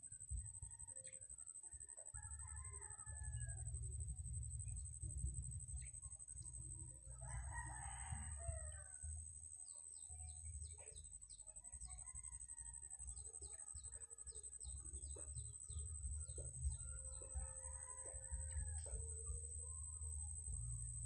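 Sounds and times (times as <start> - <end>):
insects droning: 0.0 - 21.0
rooster crowing: 1.8 - 3.8, 7.2 - 9.2, 17.0 - 19.3
low uneven rumble: 3.0 - 9.4.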